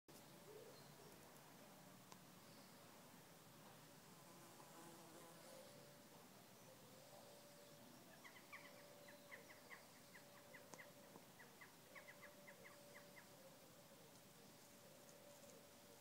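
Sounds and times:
bird chirping: 0:00.1 - 0:01.2, 0:06.4 - 0:16.0
faint steady hum: 0:00.1 - 0:16.0.

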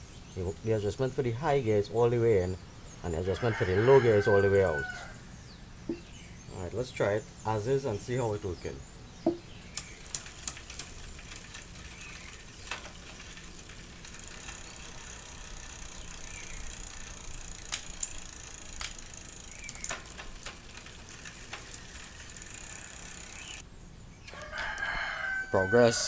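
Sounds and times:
bicycle chain whirring: 0:09.5 - 0:23.7
derailleur clicks: 0:09.6 - 0:23.6.

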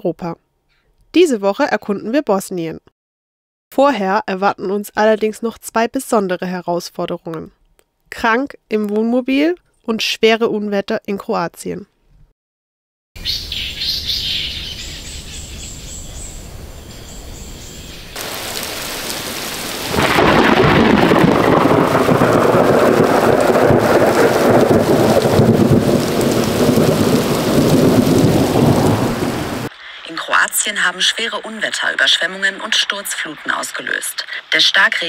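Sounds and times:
low thunder rumble: 0:18.2 - 0:29.7
heavy rain: 0:18.2 - 0:34.4.

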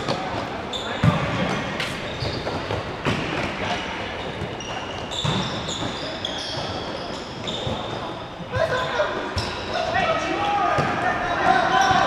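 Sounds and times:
sneakers squeaking on court: 0:00.0 - 0:09.9
players shouting: 0:08.6 - 0:12.0.

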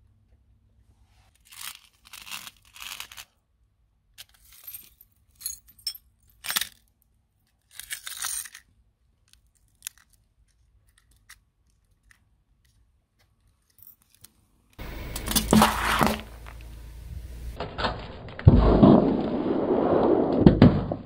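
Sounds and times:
glass debris scraping on stone: 0:14.8 - 0:16.9.

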